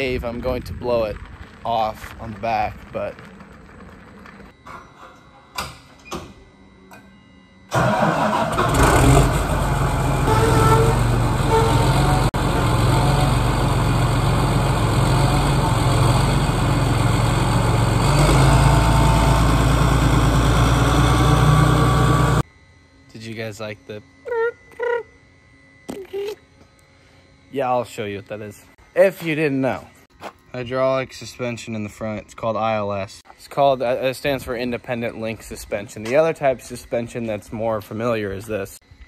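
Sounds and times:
tractor diesel engine running: 7.7 - 22.4.

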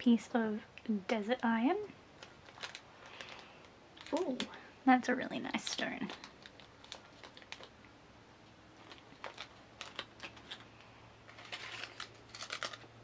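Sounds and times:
plastic bags crinkling: 2.1 - 4.6, 5.4 - 7.9, 8.8 - 13.0
plastic and paper rustling: 2.2 - 4.6, 5.3 - 7.8, 8.8 - 13.0.

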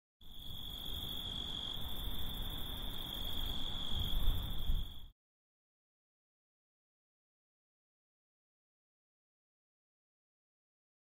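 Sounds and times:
crickets trilling: 0.2 - 5.1.

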